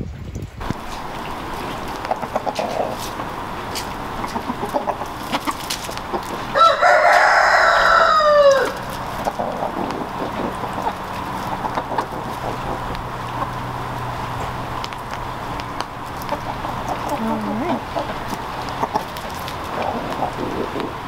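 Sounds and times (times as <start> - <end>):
chickens clucking: 0.6 - 21.0
rooster crowing: 4.0 - 9.8.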